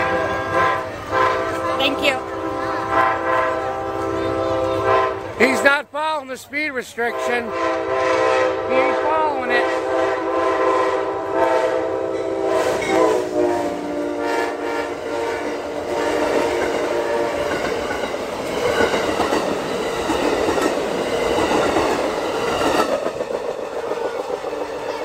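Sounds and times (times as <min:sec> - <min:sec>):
train horn: 0:00.0 - 0:05.6, 0:07.0 - 0:17.9
rush and rattle of train cars: 0:00.0 - 0:25.0.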